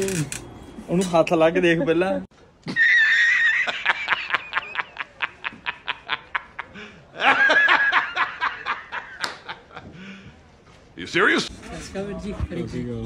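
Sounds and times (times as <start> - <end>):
man laughing hard: 2.7 - 9.9.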